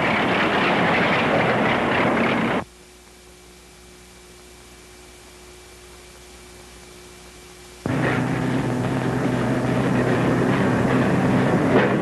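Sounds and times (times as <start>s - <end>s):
film soundtrack hiss and hum: 0.0s - 12.0s
loud noisy burst: 7.8s - 12.0s.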